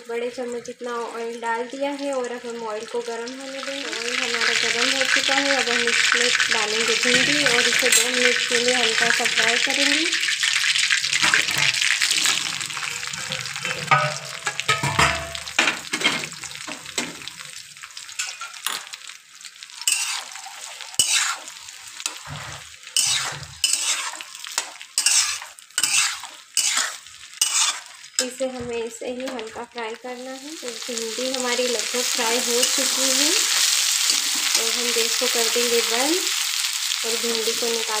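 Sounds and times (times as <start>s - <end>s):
oil sizzling: 0.0s - 38.0s
metal spatula scraping pan: 6.7s - 9.8s, 11.1s - 17.4s, 18.1s - 18.9s, 19.7s - 28.8s, 31.7s - 36.4s.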